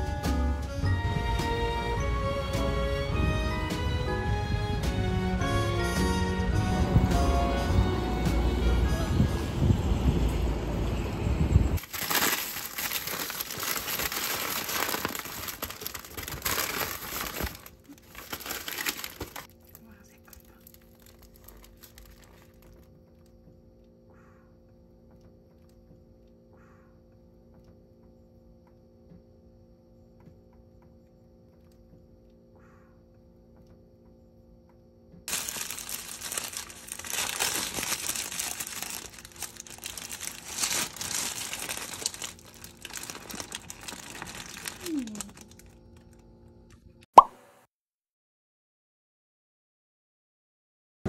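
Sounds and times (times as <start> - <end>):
paper crinkling and rustling: 11.8 - 22.9, 35.3 - 46.2.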